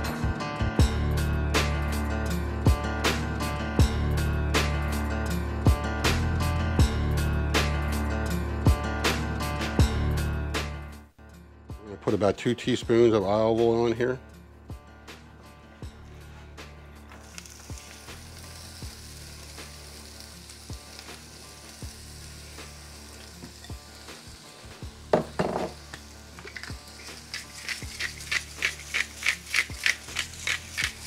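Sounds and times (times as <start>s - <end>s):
vegetables sizzling in frying pan: 17.2s - 31.0s
pan clattering: 25.1s - 31.0s
utensil stirring and scraping: 26.4s - 31.0s.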